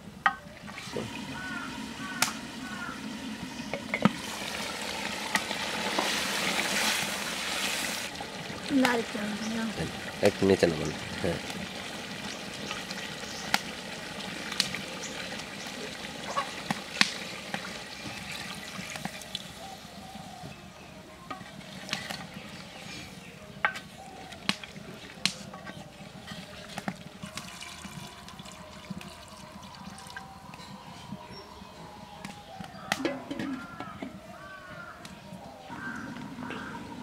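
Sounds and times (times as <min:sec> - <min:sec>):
curry sizzling in a pot: 0:00.3 - 0:31.3
water pouring into a pot: 0:00.5 - 0:20.0, 0:21.3 - 0:31.2.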